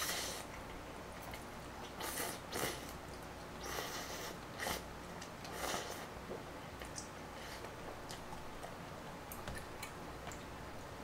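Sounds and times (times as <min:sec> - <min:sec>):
slurping noodles: 0:01.9 - 0:03.0, 0:03.6 - 0:04.9, 0:05.5 - 0:06.1.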